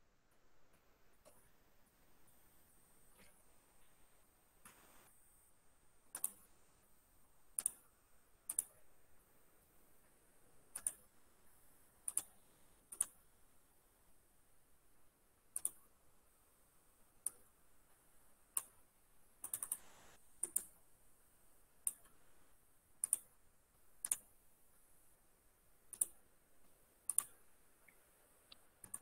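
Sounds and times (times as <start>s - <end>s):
computer mouse clicks: 1.2s - 1.4s, 6.1s - 6.5s, 7.6s - 7.8s, 8.5s - 8.8s, 10.7s - 11.1s, 12.0s - 13.2s, 15.5s - 15.9s, 17.2s - 17.5s, 18.5s - 18.8s, 19.4s - 20.8s, 21.8s - 22.3s, 23.0s - 23.3s, 24.0s - 24.3s, 25.9s - 29.0s.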